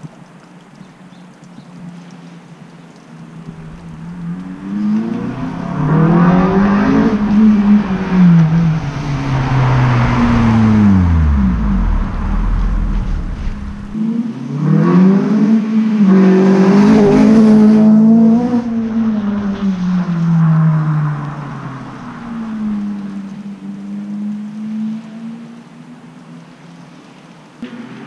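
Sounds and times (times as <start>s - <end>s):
tyre hiss on wet road: 0.0s - 14.0s, 18.6s - 23.5s
car engine driving past: 3.4s - 14.0s.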